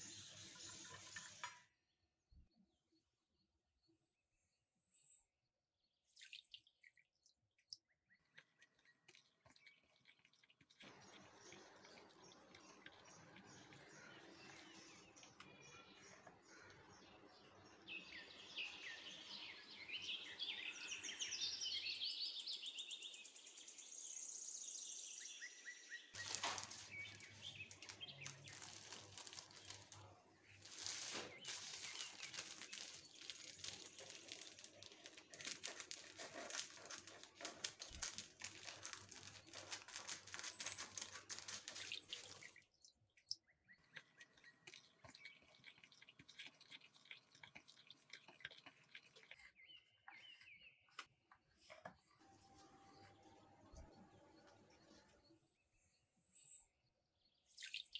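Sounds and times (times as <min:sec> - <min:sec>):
plastic wrapper crinkling: 0:26.2 - 0:42.6.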